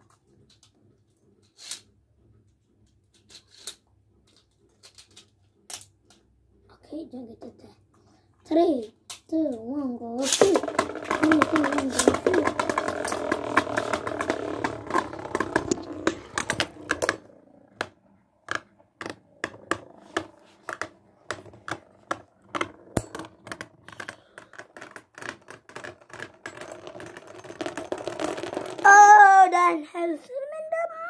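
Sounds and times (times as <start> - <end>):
spinning tops clattering: 10.2 - 17.9, 19.4 - 28.9.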